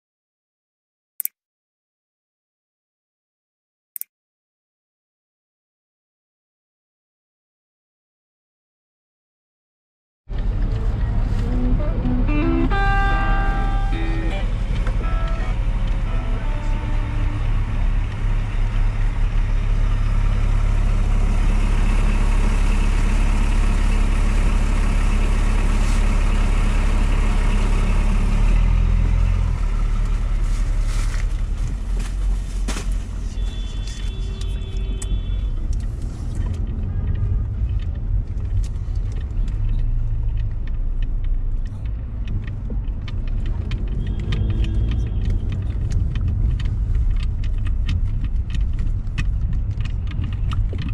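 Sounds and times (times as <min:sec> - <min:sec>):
car engine and road noise: 0:10.3 - 0:50.9.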